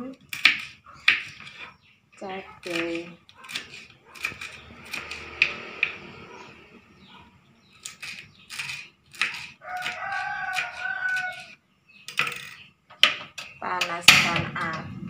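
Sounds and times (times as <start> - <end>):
rooster crowing: 9.6 - 11.6.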